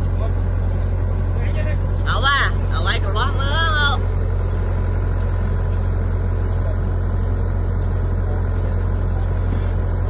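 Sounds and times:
excavator diesel engine rumbling: 0:00.0 - 0:10.0.

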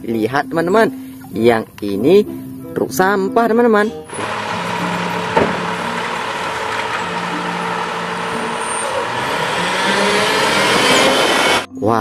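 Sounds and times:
truck engine running: 0:04.0 - 0:11.7.

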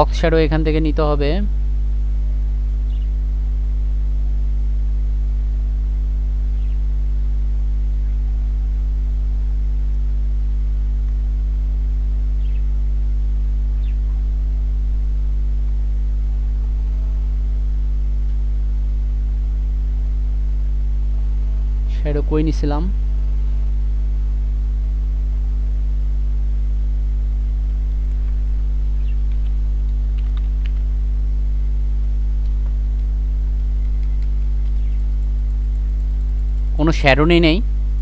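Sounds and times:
electrical mains hum: 0:00.0 - 0:38.0
faint clicks: 0:29.1 - 0:31.0, 0:32.4 - 0:36.7.

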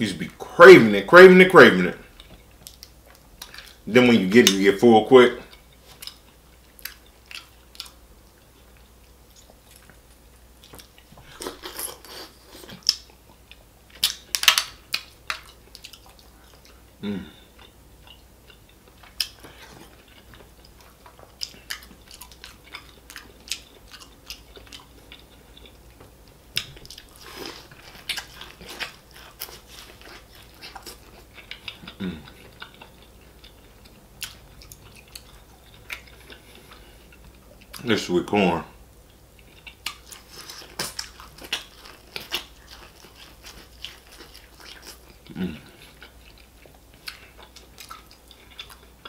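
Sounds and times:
wet chewing and lip smacking: 0:02.1 - 0:03.8, 0:05.5 - 0:16.8, 0:17.6 - 0:37.9, 0:39.1 - 0:49.0
man humming: 0:17.0 - 0:17.5, 0:32.0 - 0:32.3.

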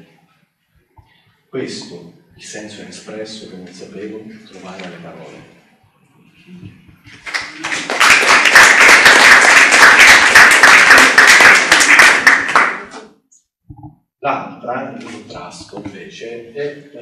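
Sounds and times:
audience applauding: 0:07.1 - 0:13.0.

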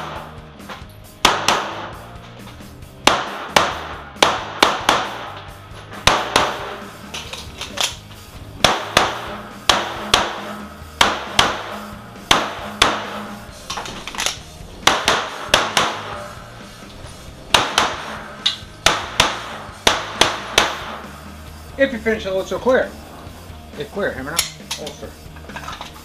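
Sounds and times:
pistol shots echoing: 0:01.2 - 0:02.1, 0:03.0 - 0:05.4, 0:06.0 - 0:06.9, 0:08.6 - 0:13.4, 0:14.8 - 0:16.3, 0:17.5 - 0:21.1.

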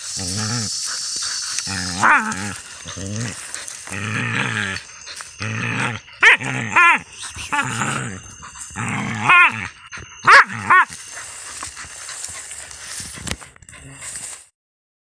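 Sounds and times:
dog growling low: 0:00.0 - 0:14.5.

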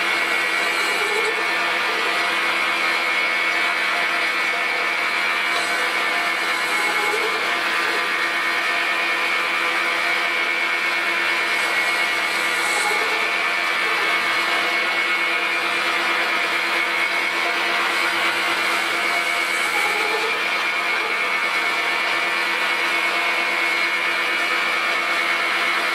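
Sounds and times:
metal lathe running: 0:00.0 - 0:25.9.

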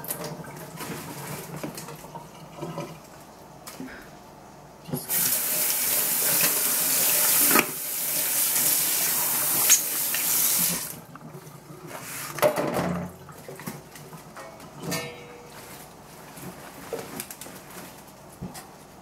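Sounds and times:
tap water running into sink: 0:05.0 - 0:11.4.

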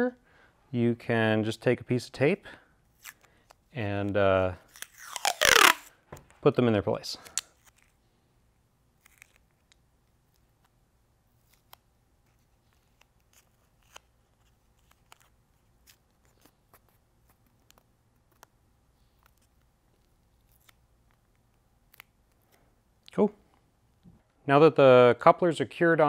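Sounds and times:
masking tape clicks and crinkles: 0:02.9 - 0:06.0, 0:09.0 - 0:10.8, 0:11.4 - 0:22.6.

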